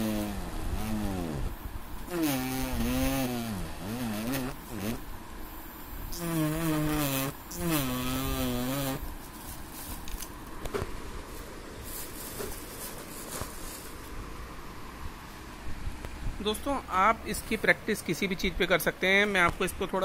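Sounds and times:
tip scratching paper: 0.0 - 1.4
engraving pen buzzing: 0.0 - 5.1, 6.1 - 9.1.

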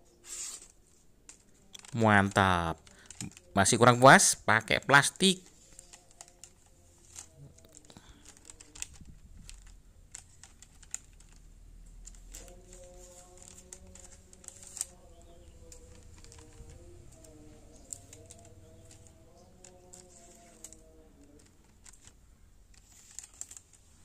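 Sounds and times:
plastic bag crinkling: 5.3 - 24.0.

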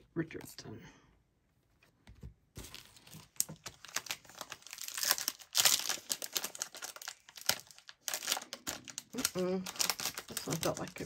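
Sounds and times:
foil wrapper crinkling and tearing: 2.6 - 11.0.

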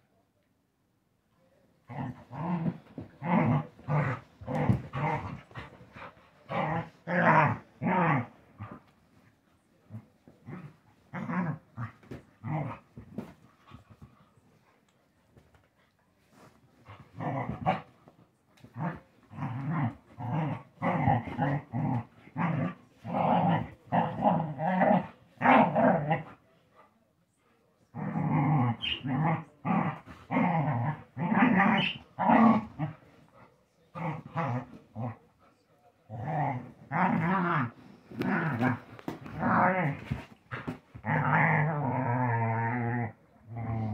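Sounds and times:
dogs growling: 28.0 - 33.1, 36.1 - 43.9.

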